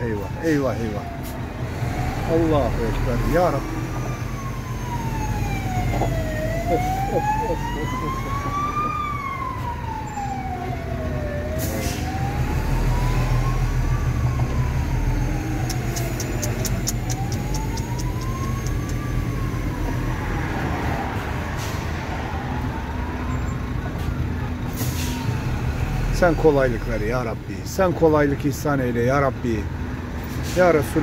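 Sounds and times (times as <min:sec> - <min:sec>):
low engine rumble: 0:00.0 - 0:20.4
emergency siren wailing: 0:00.0 - 0:27.6.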